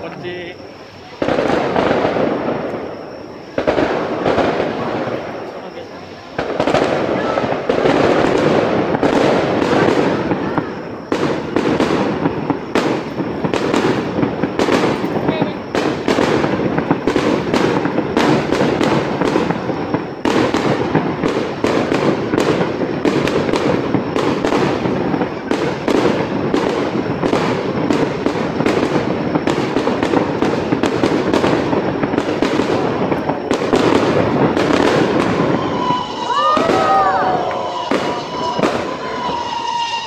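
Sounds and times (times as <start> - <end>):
fireworks bangs and crackles: 0.0 - 40.0.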